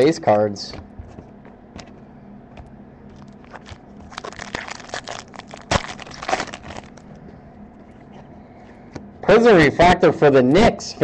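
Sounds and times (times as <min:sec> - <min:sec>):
foil pack tearing and crinkling: 0:03.2 - 0:07.0.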